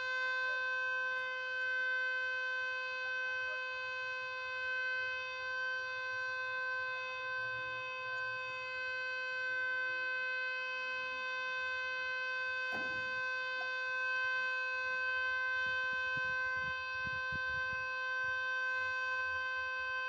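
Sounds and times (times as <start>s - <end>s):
warning siren steady tone: 0.0s - 20.0s
brief knock: 12.7s - 13.7s.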